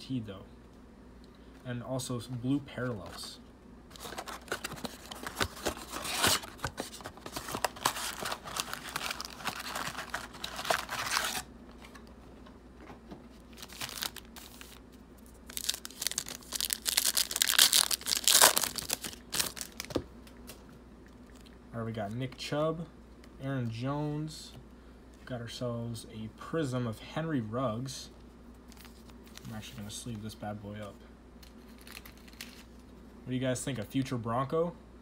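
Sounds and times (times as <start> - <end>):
plastic wrappers crinkling and tearing: 3.9 - 12.0, 13.5 - 20.0, 31.4 - 32.8.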